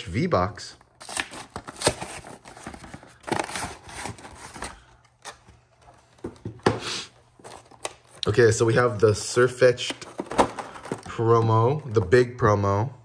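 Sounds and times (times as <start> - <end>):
packaging rustling and tearing: 0.8 - 6.2, 7.3 - 8.3, 9.8 - 11.2.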